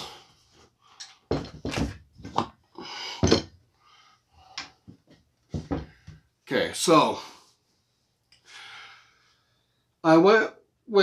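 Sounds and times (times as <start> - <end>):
knocks and thumps on a table: 1.3 - 2.5, 3.2 - 3.5, 4.6 - 6.2.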